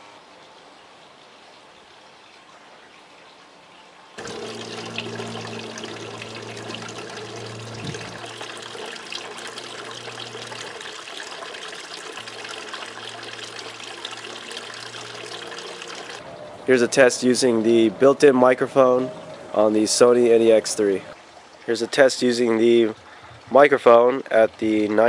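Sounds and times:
fountain water splashing: 4.2s - 18.6s
low steady hum: 4.2s - 21.2s.

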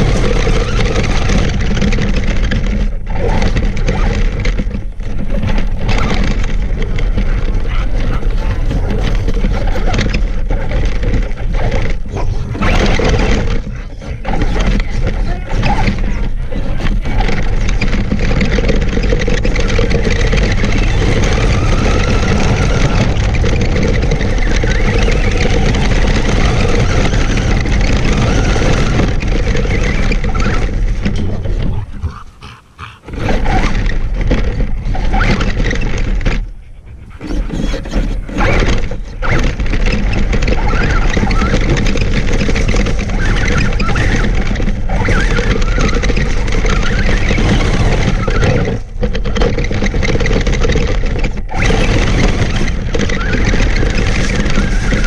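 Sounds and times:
tyres on gravel: 12.7s - 35.5s
toy truck motor: 16.8s - 31.0s.

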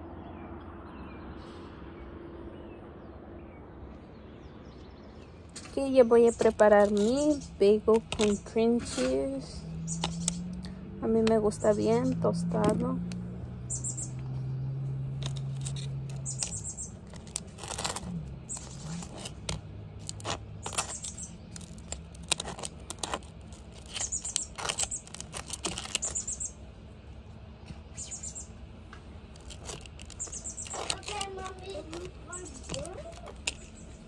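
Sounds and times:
knife scraping toasted bagel: 15.2s - 26.3s, 29.4s - 33.7s.

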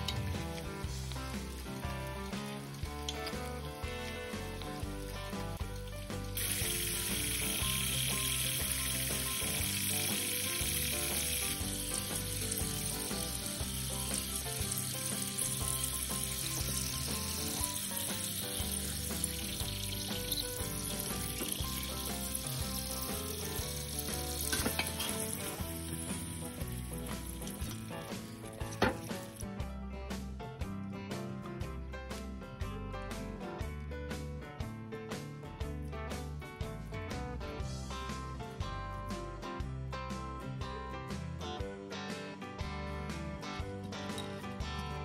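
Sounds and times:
potatoes sizzling in hot oil: 0.0s - 29.6s
background music: 0.0s - 45.0s.

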